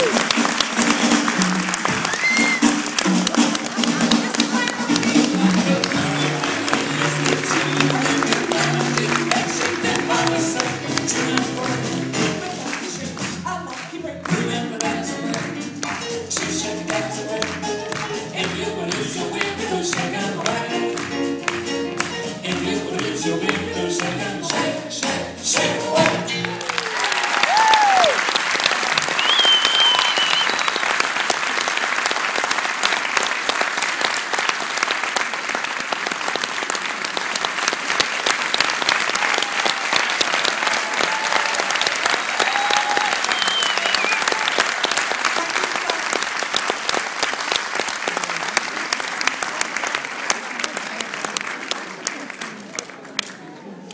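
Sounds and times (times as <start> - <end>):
live music: 0.0 - 51.4
audience applauding: 0.0 - 53.9
whoops and whistles: 2.1 - 2.7, 29.1 - 30.9, 42.4 - 44.4.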